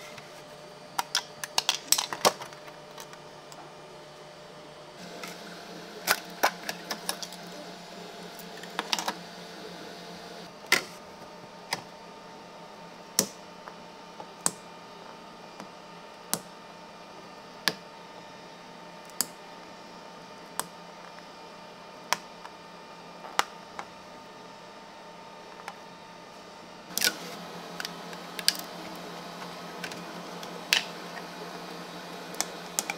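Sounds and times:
low steady hum: 0:21.8 - 0:32.9.

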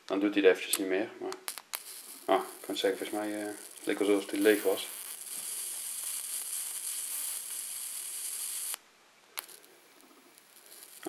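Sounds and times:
plasma lighter buzzing hiss: 0:01.4 - 0:08.8, 0:09.4 - 0:11.0.

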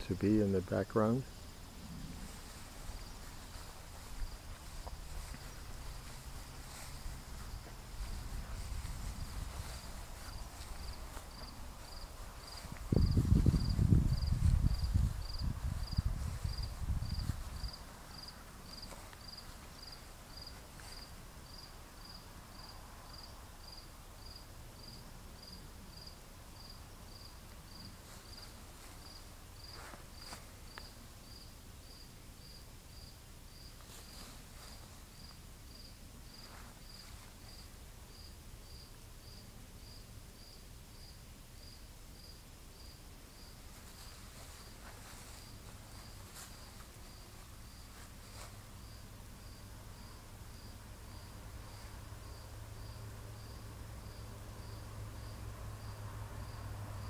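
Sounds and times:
cricket chirping: 0:00.3 - 0:57.0
low rumble on microphone: 0:01.2 - 0:18.3.

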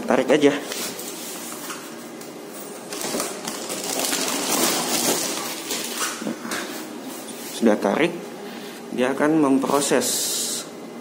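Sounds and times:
foil sheet crinkling: 0:02.8 - 0:06.4.

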